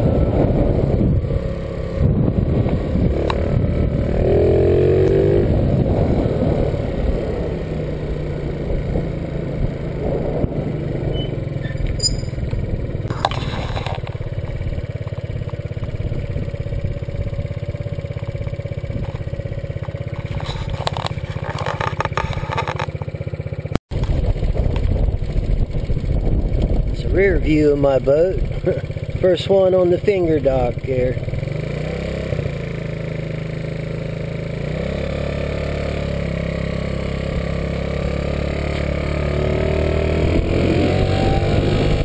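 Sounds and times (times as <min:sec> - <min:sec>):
wind rumble on microphone: 0:00.0 - 0:21.4, 0:23.9 - 0:29.3, 0:39.3 - 0:42.0
motor scooter engine drone: 0:00.0 - 0:42.0.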